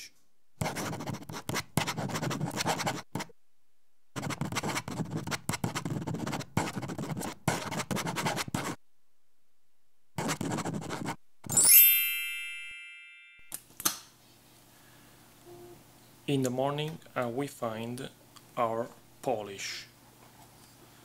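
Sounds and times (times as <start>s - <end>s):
marker scratching on paper: 0.6s - 3.3s, 4.2s - 8.8s, 10.2s - 11.2s.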